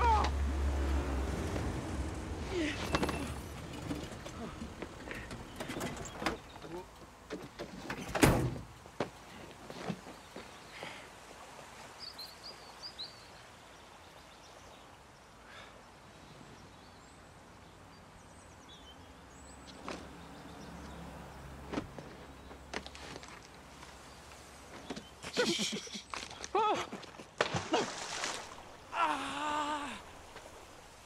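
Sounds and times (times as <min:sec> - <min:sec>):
rustles: 0:00.0 - 0:12.8, 0:21.6 - 0:31.0.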